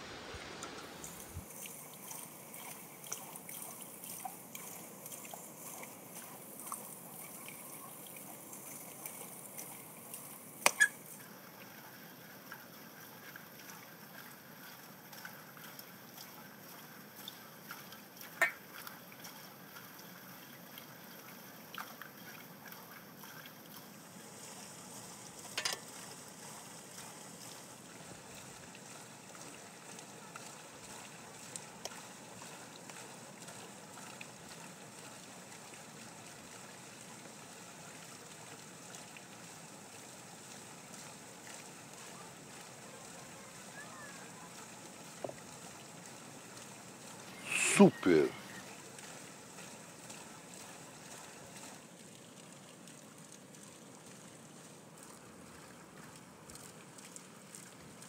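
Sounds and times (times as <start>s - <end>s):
running water trickling: 0.0s - 58.0s
fork clinking on metal platter: 25.6s - 25.8s.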